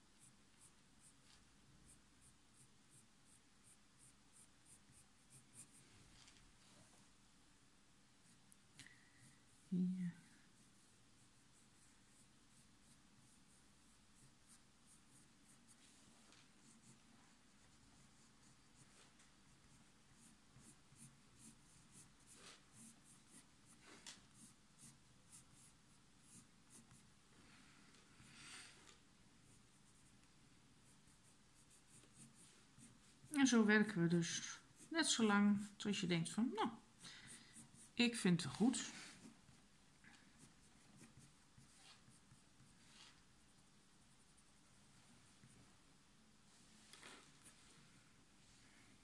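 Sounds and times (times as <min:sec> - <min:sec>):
pencil scratching on paper: 0:00.2 - 0:05.8, 0:09.2 - 0:27.1, 0:29.5 - 0:30.2, 0:30.8 - 0:36.4, 0:37.2 - 0:39.4, 0:40.4 - 0:43.2.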